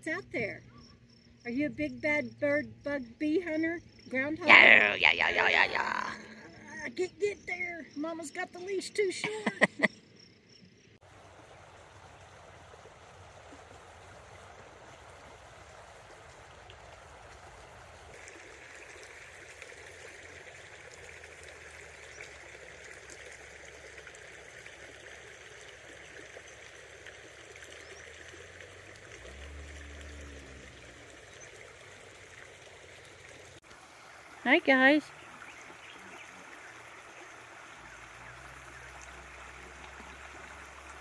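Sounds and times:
shallow river water running: 0:02.7 - 0:41.0.

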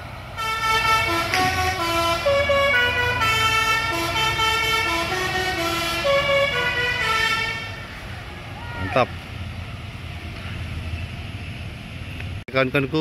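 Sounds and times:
bus engine rumble: 0:00.0 - 0:13.0
musical air horn playing a tune: 0:00.4 - 0:07.8.

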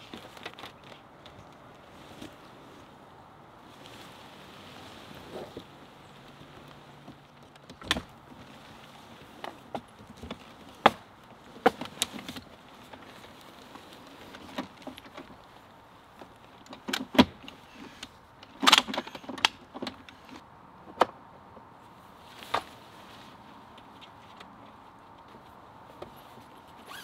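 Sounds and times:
clicks and clatter of tent hardware: 0:00.0 - 0:02.9, 0:05.0 - 0:21.7, 0:22.3 - 0:22.8, 0:23.6 - 0:27.0.

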